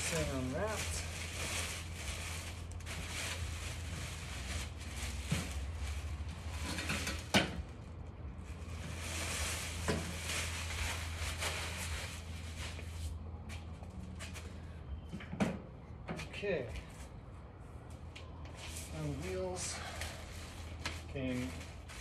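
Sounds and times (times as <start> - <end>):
plastic wrapping crinkling: 0.0 - 7.3, 8.5 - 13.1, 18.7 - 22.0.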